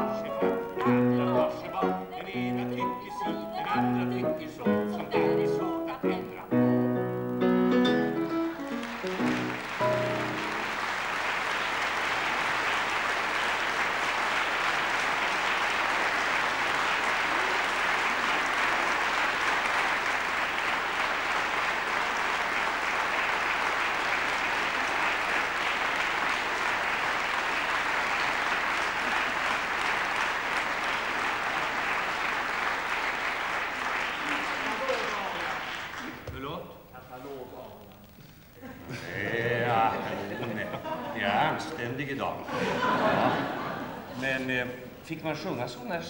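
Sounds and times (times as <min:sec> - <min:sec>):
piano notes: 0:00.0 - 0:11.2
audience applauding: 0:07.8 - 0:36.6, 0:38.0 - 0:45.0.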